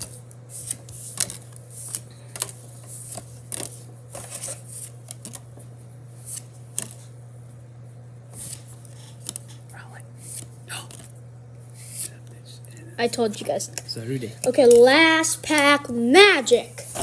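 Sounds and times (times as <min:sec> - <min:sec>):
cards being flipped: 0:00.0 - 0:07.2, 0:08.3 - 0:12.4.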